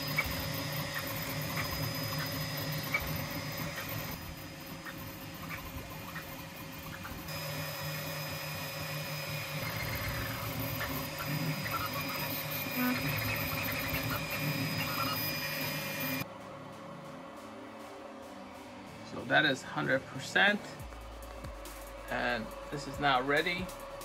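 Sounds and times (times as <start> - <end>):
three d printer motors whining: 0.0 - 16.2.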